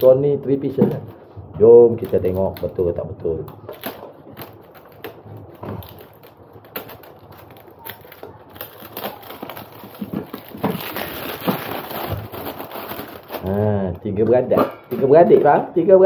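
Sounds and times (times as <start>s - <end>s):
packaging rustling: 1.9s - 13.8s
metal pots clicking and knocking: 14.2s - 15.8s.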